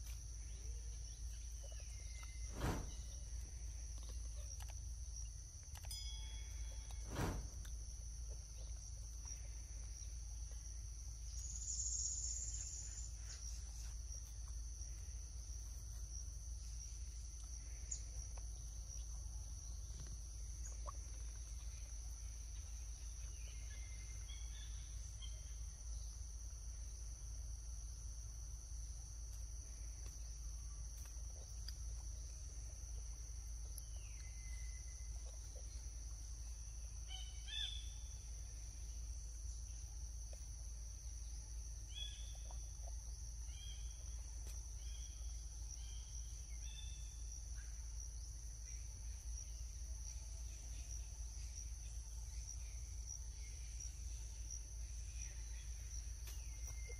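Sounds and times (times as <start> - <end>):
insects droning: 0.0 - 56.9
low hum: 1.1 - 10.5.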